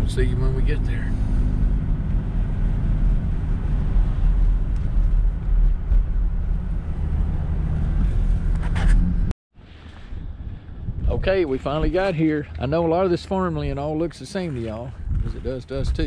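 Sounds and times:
truck engine and road rumble: 0.0s - 16.0s.

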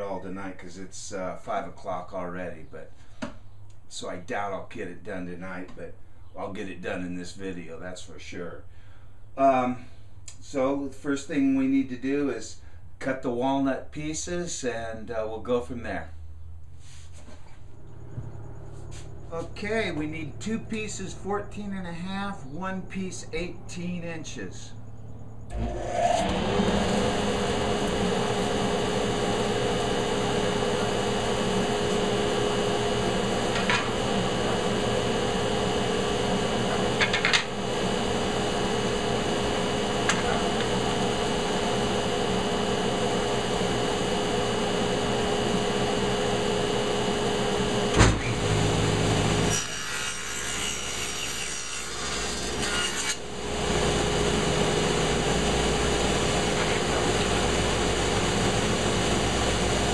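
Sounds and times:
table saw whining: 25.5s - 59.9s.

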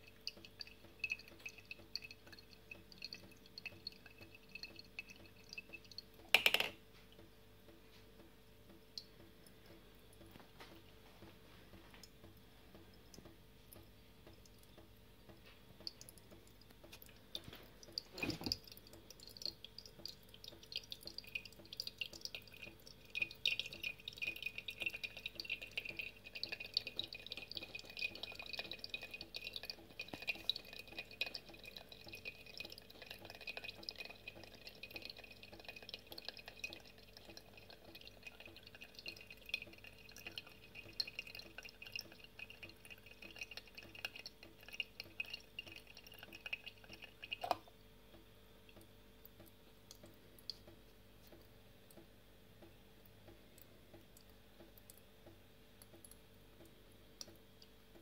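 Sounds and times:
liquid trickling through funnel: 0.0s - 7.2s, 11.7s - 58.0s
drips ringing on glass: 0.0s - 7.8s, 13.1s - 50.8s.

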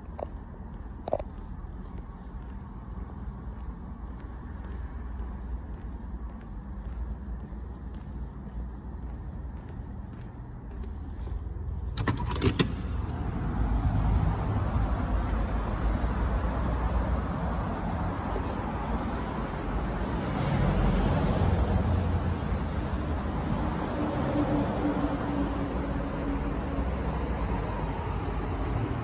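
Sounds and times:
low outdoor rumble: 0.0s - 29.0s
door push-bar latch clicking: 12.0s - 12.9s.

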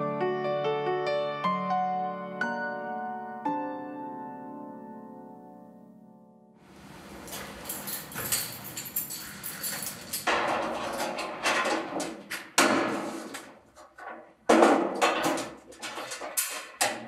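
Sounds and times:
key working a lock: 7.3s - 10.3s
metal mailbox door rattling: 7.6s - 13.3s, 14.5s - 17.0s.

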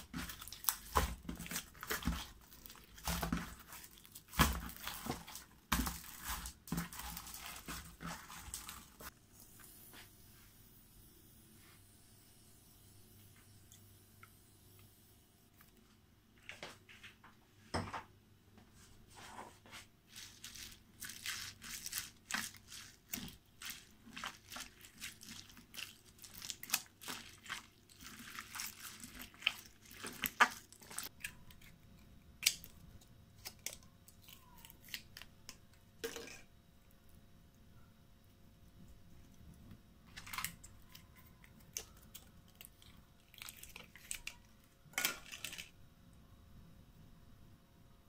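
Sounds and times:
hands squishing slime: 0.0s - 9.1s, 20.1s - 31.4s.

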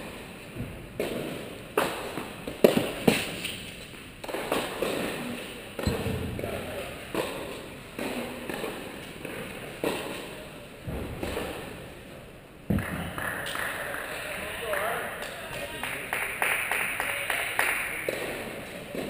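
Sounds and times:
tennis balls struck and bouncing: 0.6s - 11.8s, 18.0s - 19.0s.

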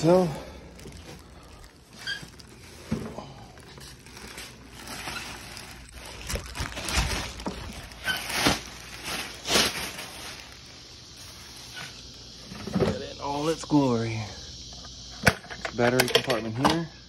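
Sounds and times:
plastic bag crinkling: 0.0s - 12.3s.

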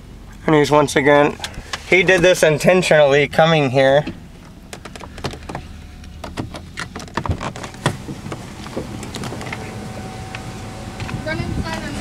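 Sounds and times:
low steady hum: 0.0s - 12.0s
clicks knocks and rustling: 4.0s - 9.6s.

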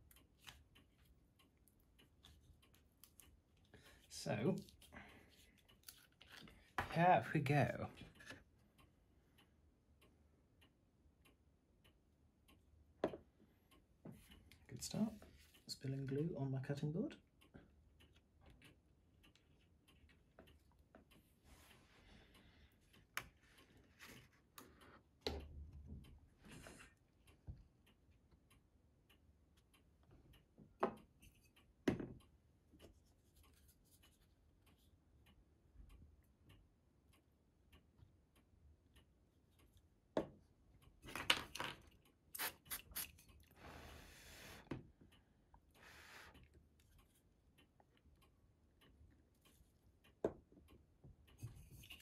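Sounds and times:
plastic parts clicking and tapping: 41.0s - 42.1s.

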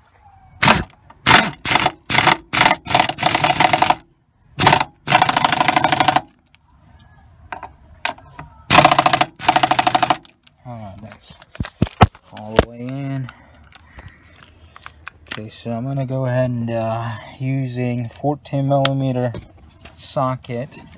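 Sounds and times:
pneumatic impact wrench hammering: 0.6s - 4.0s, 4.6s - 6.3s, 8.7s - 10.3s.

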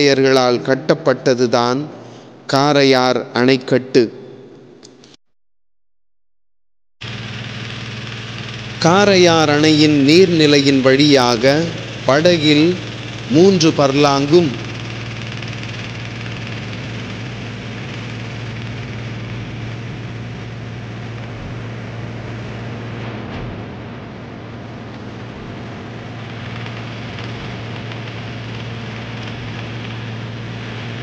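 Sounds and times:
water hissing: 7.0s - 23.0s
boat motor droning: 7.0s - 31.0s.

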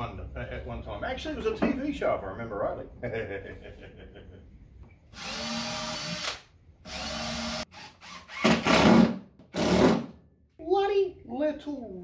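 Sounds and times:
power drill driving screws: 5.1s - 10.1s.

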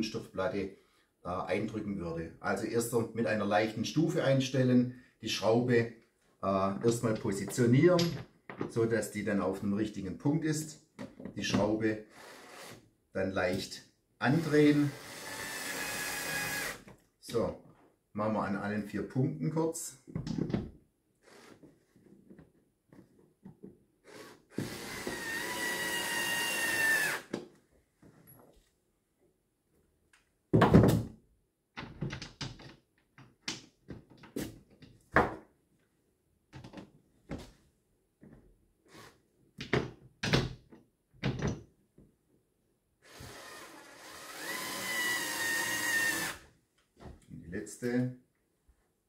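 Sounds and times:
tool and parts clicking and knocking: 6.8s - 8.8s, 31.7s - 35.5s, 39.6s - 41.8s
cordless drill driving screws: 12.1s - 12.8s, 14.3s - 16.9s, 24.0s - 27.3s, 43.0s - 46.4s.

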